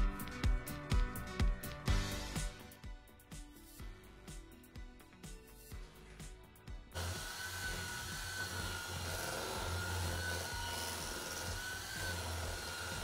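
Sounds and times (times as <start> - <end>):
electric hand mixer whining: 6.9 - 13.0.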